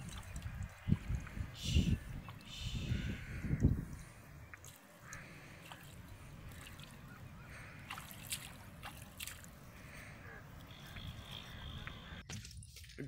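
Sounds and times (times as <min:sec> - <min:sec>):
fish splashing in water: 0:04.4 - 0:11.4.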